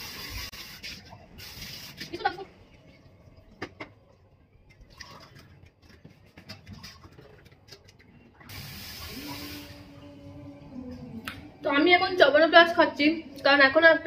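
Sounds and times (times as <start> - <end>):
low steady hum: 2.3 - 8.5, 9.3 - 14.0.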